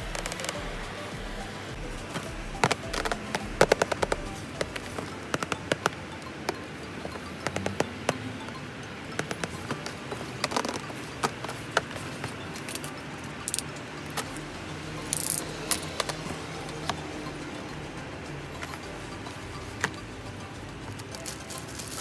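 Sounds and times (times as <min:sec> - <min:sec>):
fingers tapping on cardboard: 0:02.1 - 0:08.2, 0:09.2 - 0:12.4.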